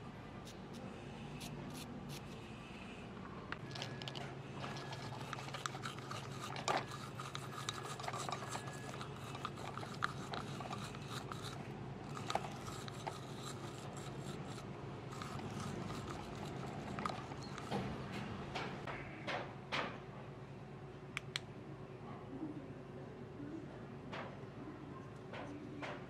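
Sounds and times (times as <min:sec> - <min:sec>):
abrasive scrubbing on steel: 0:04.8 - 0:17.8.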